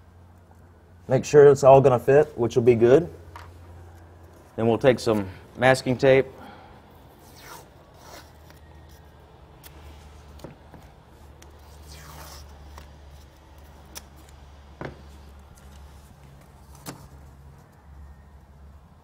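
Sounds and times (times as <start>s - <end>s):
low steady hum: 0.0s - 19.0s
masking tape ripping off roll: 11.4s - 14.5s.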